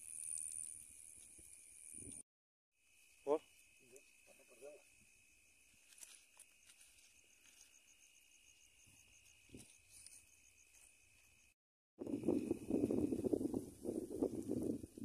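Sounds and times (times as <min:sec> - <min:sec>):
fast ticking insect chirp: 0:02.8 - 0:14.8
insects high drone: 0:02.8 - 0:14.8.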